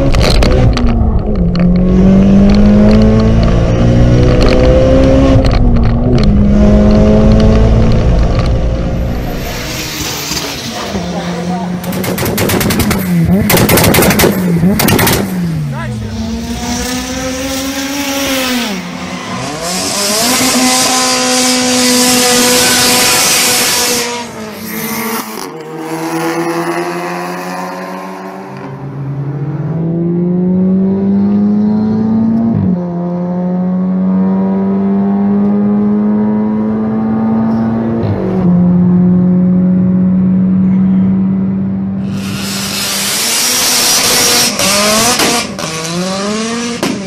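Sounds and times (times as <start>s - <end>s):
car engine accelerating hard: 0.0s - 47.0s.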